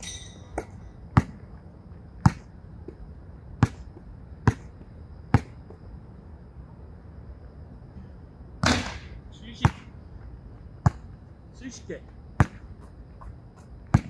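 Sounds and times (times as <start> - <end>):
basketball bouncing on court: 0.0 - 1.5, 2.2 - 3.0, 3.6 - 5.7, 12.4 - 12.7.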